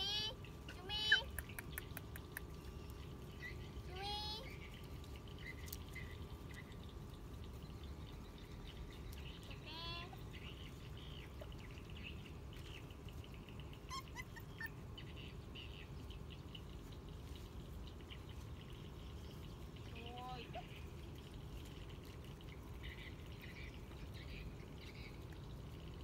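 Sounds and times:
low background hum: 0.0s - 26.0s
puppy whining: 13.8s - 15.2s.

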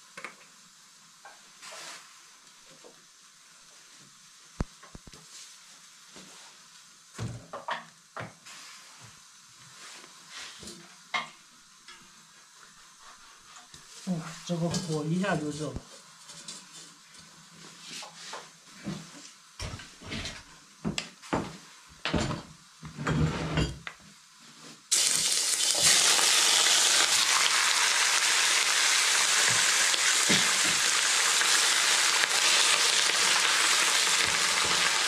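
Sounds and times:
beef sizzling in hot oil: 0.0s - 19.8s, 21.1s - 35.0s
wooden spatula scraping: 12.7s - 15.3s.

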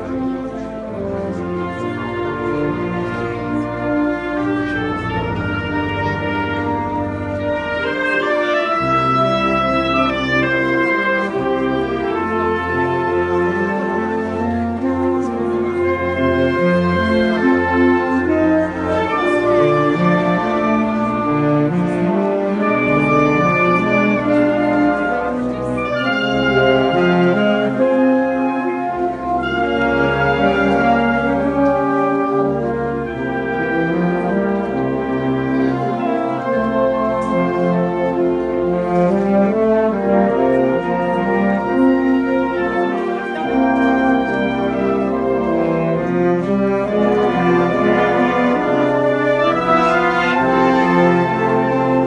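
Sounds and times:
wind band playing slow music: 0.0s - 52.0s.

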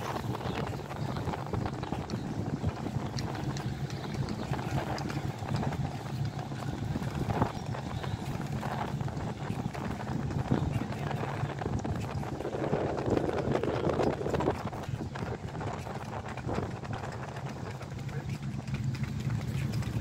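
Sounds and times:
footsteps on stone paving: 0.0s - 20.0s
wind buffeting microphone: 0.0s - 20.0s.

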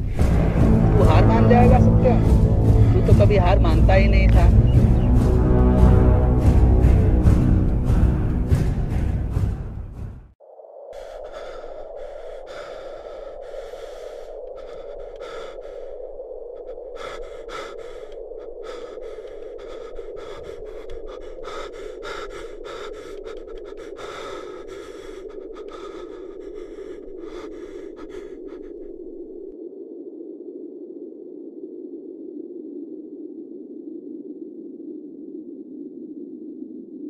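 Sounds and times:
rushing drone: 0.0s - 10.0s, 11.0s - 29.4s
man gasping for breath: 11.0s - 29.4s.

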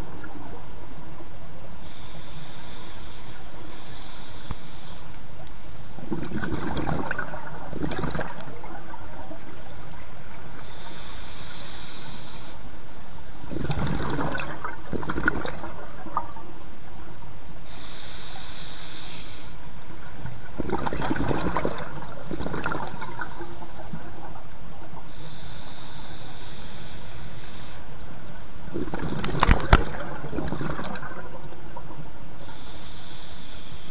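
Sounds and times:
regulator inhale hiss: 1.6s - 6.0s, 10.5s - 13.5s, 17.4s - 20.2s, 24.9s - 33.9s
exhaled air bubbling: 5.4s - 11.7s, 13.2s - 18.1s, 19.5s - 26.4s, 28.2s - 32.7s.

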